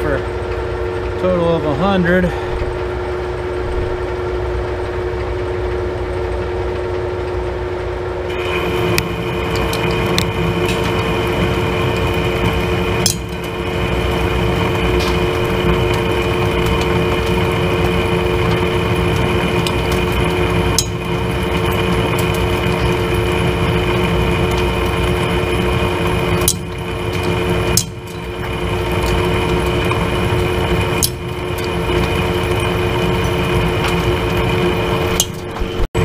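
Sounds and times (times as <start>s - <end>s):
lathe cutting metal: 8.3s - 36.0s.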